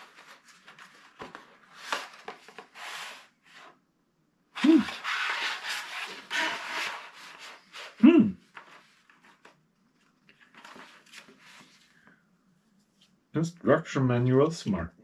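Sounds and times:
cardboard tray scraping: 4.6s - 7.7s.

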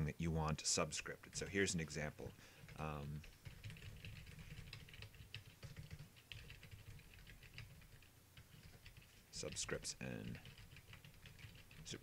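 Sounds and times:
keyboard typing: 2.6s - 12.0s.

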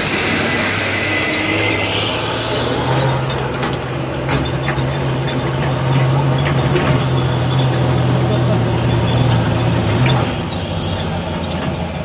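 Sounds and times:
diesel truck engine working hard: 0.0s - 12.0s
brief high squeal: 0.1s - 6.2s
truck body clanking and rattling: 2.8s - 12.0s.

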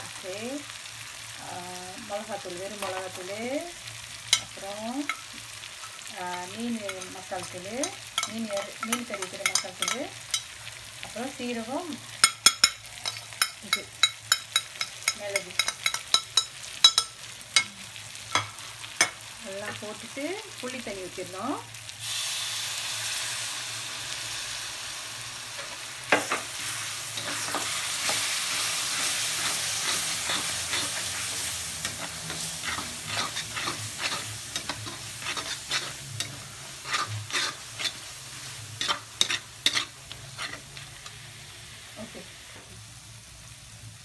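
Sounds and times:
liquid sizzling in hot pan: 0.0s - 44.0s
metal spatula scraping pan: 26.6s - 40.8s.

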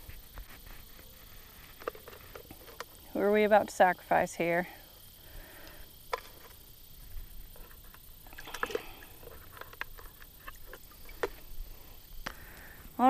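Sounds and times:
water sloshing and dripping: 7.6s - 11.8s.

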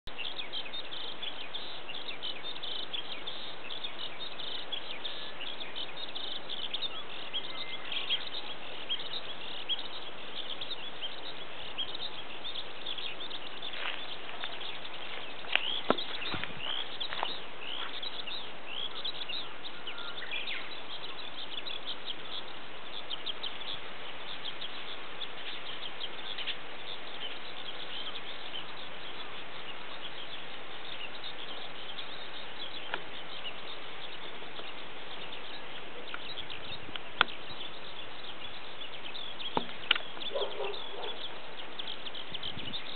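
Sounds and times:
skylark singing: 0.0s - 42.9s.

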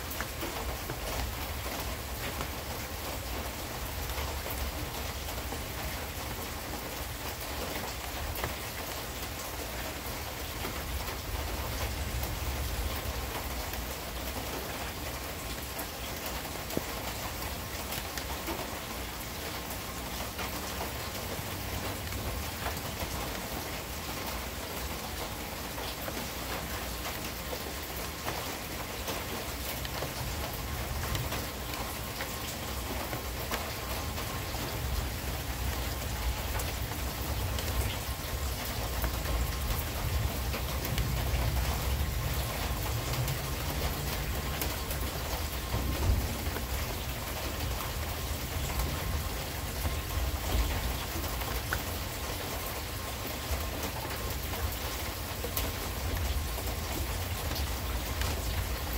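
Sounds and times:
steady rain: 0.0s - 58.9s
thunder rumble: 45.3s - 47.0s.

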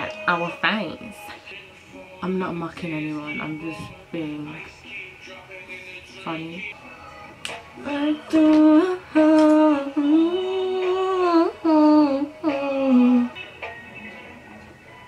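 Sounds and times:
woman humming: 7.8s - 13.4s.

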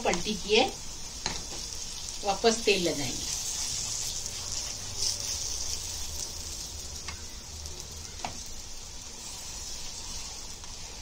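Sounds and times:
oil sizzling in a pan: 0.0s - 11.0s.

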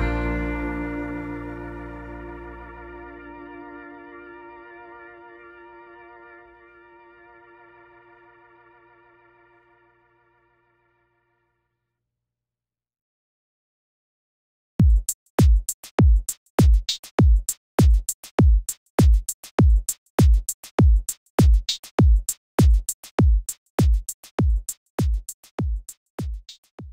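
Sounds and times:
electronic drum machine beat: 14.8s - 26.9s.

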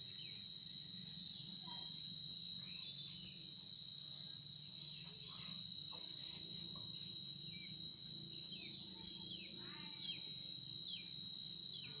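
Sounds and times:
high-pitched insect trill: 0.0s - 12.0s.

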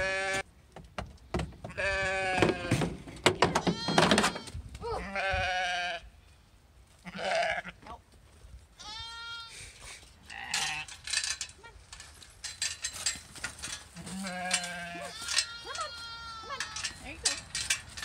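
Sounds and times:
sheep bleating: 3.6s - 6.1s, 7.0s - 7.8s, 14.0s - 16.9s
clicks and rattles: 10.5s - 15.6s, 16.6s - 18.0s.

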